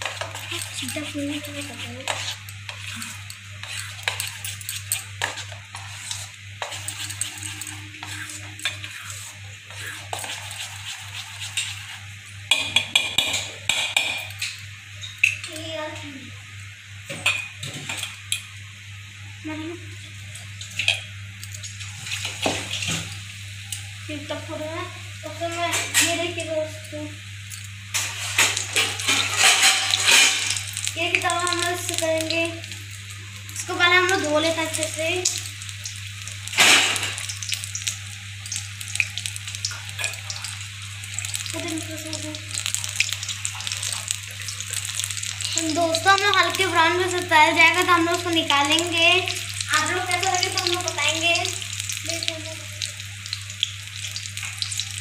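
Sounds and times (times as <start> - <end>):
batter stirred in metal bowl: 0.0 - 14.2, 27.9 - 32.4
food deep-frying in hot oil: 0.0 - 55.0.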